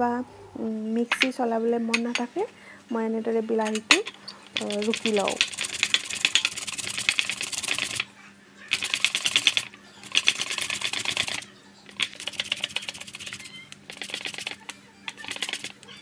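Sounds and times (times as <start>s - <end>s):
tomato rasping on metal grater: 4.6s - 8.0s, 8.7s - 15.8s.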